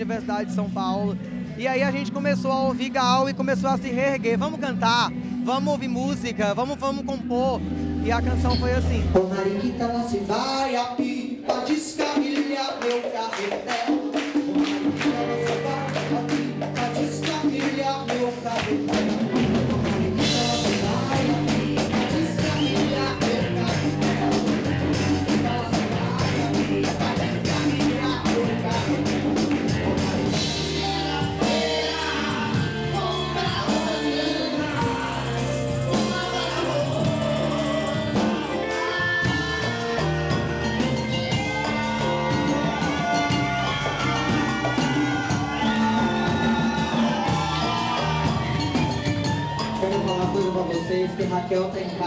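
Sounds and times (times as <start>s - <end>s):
lead vocalist singing: 0.0s - 52.0s
live band music: 0.0s - 52.0s.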